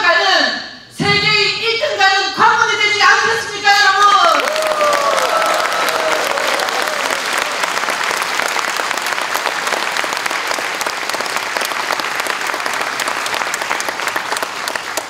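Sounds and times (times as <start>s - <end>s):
audience applauding: 4.3s - 15.0s.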